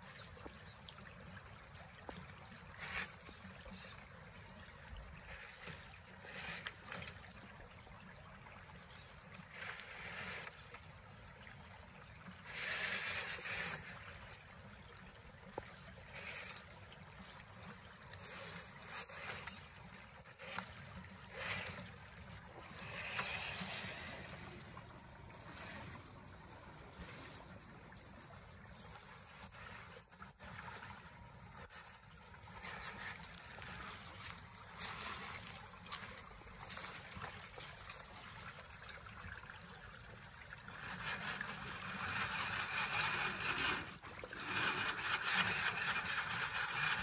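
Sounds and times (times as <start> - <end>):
creek water running over stones: 0.0 - 47.0
toy truck electric motor: 21.3 - 21.8, 40.8 - 47.0.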